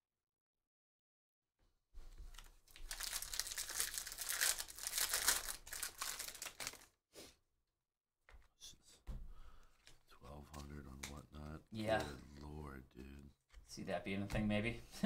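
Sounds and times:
foil wrapper tearing and crinkling: 2.3s - 7.0s.

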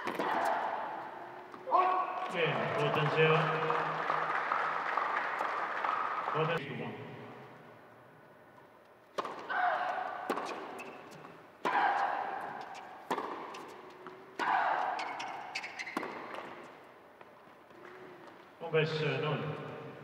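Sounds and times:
tennis racket hitting ball: 0.0s - 1.7s, 9.1s - 16.6s.

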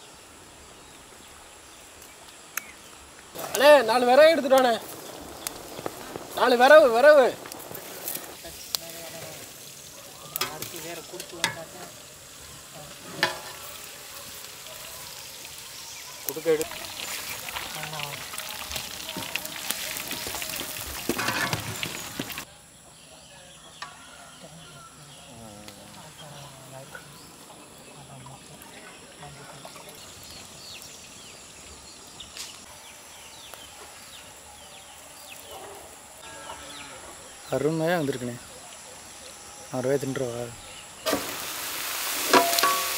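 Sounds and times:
faint high insect drone: 0.0s - 12.9s, 21.9s - 42.9s
steady background hiss: 0.0s - 17.3s, 21.1s - 42.9s
prawns sizzling in hot oil: 3.2s - 22.5s, 39.8s - 42.9s
metal ladle clinking on pan: 42.3s - 42.9s.

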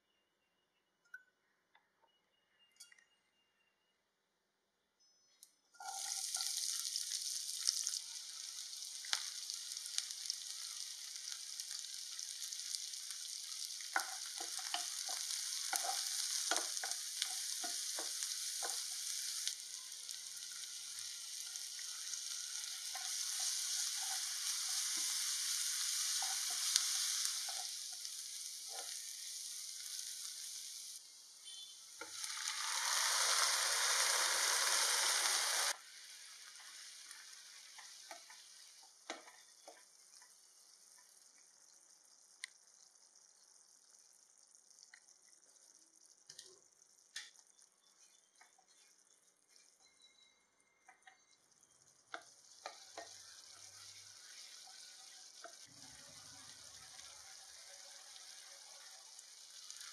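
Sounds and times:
meat frying in pan: 5.8s - 49.9s, 51.0s - 59.9s
shallots sizzling in oil: 5.8s - 59.9s
spatula scraping pan: 13.9s - 19.3s.

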